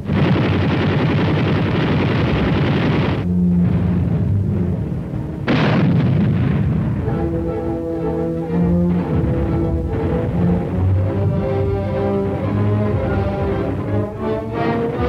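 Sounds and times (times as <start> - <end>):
explosion blasts: 0.0 - 7.8, 8.9 - 11.1
low orchestral notes: 3.2 - 15.0.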